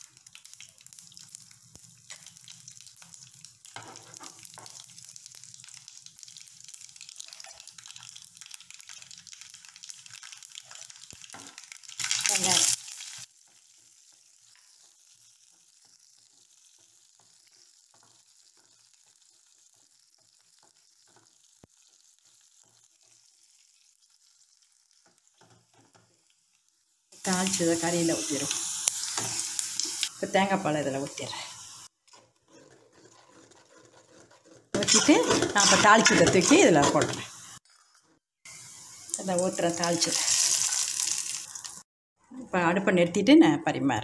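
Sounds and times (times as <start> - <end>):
hot oil sizzling and popping: 0.0 - 41.9
spatula stirring in pan: 0.2 - 26.6, 30.9 - 39.2
loud burst of sizzling: 12.0 - 13.4, 27.1 - 31.9, 34.8 - 37.7, 38.5 - 41.9.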